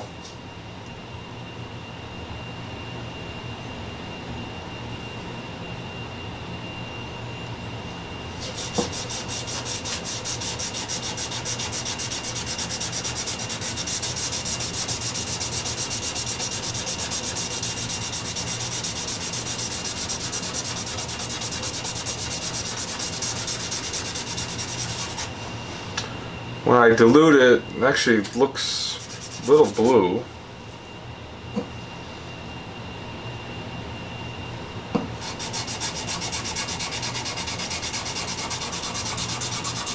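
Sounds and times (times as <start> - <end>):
pad scrubbing on wood board: 8.4 - 25.3, 29.0 - 29.9, 35.2 - 39.9.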